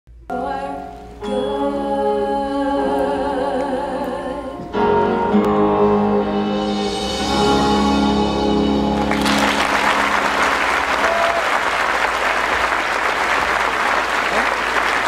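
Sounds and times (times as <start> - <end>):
woman singing with vibrato: 0.3 - 5.4
pit orchestra playing: 4.7 - 11.2.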